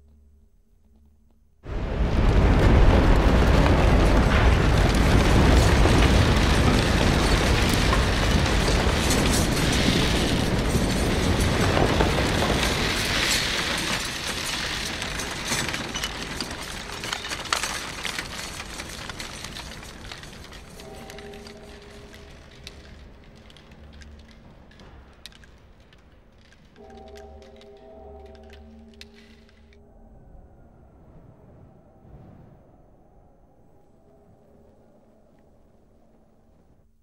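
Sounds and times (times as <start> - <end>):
dense rumbling roar: 29.8 - 36.4.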